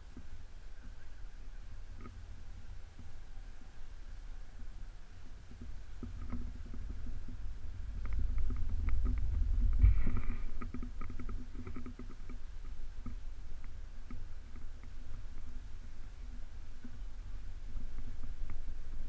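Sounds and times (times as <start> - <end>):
wind buffeting microphone: 4.5 - 19.0.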